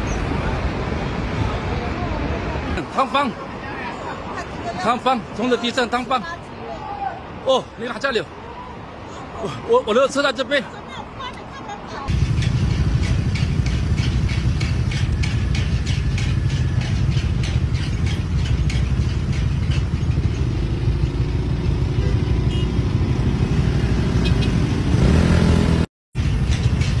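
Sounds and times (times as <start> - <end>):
traffic rumble: 0.0 - 27.0
regular ticking: 12.1 - 22.0.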